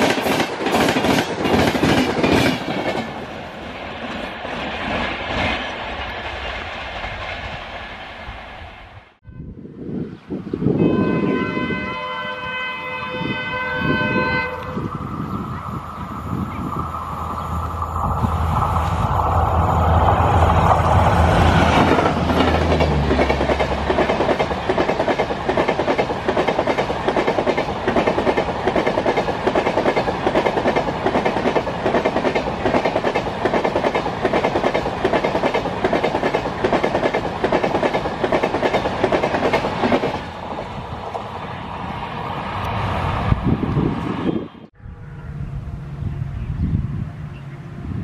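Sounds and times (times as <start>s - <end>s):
train wheels clacking over rail joints: 0.0s - 3.4s, 21.4s - 41.2s
diesel locomotive engine drone: 0.0s - 48.0s.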